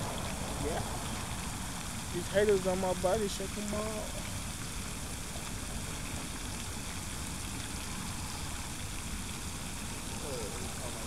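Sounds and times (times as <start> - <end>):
flickering low rumble: 0.0 - 8.4
steady rushing outdoor noise: 0.0 - 11.0.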